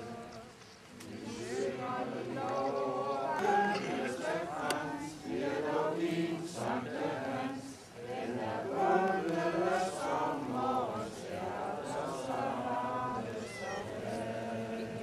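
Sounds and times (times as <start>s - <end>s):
crowd singing in unison: 0.0s - 15.0s.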